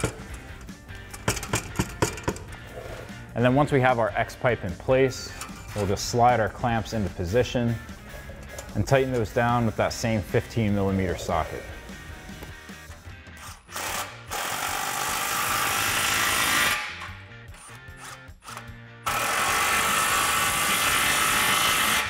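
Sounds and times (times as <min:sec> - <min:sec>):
impact wrench running: 0:00.0 - 0:02.5, 0:05.4 - 0:05.8, 0:12.4 - 0:22.0.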